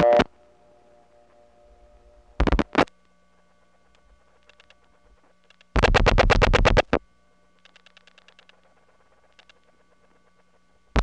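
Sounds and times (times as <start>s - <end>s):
faint steady tone: 0.0s - 5.8s, 7.0s - 11.0s
line hum: 0.0s - 11.0s
rotary dial pulse clicks: 3.9s - 7.0s, 7.6s - 11.0s.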